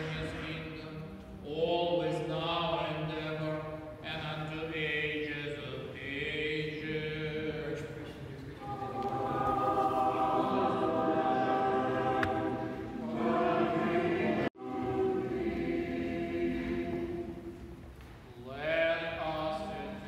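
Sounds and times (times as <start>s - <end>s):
choir singing unaccompanied chant: 6.1s - 17.7s.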